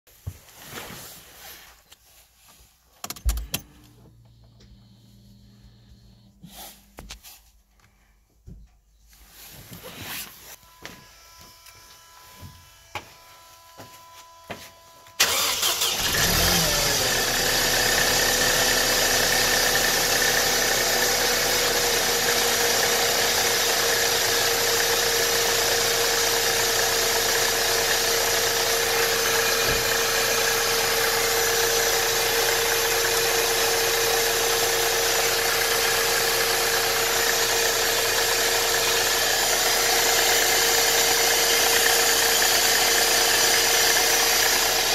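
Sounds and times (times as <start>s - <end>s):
car engine starting and idling: 3.0s - 6.5s, 15.2s - 44.9s.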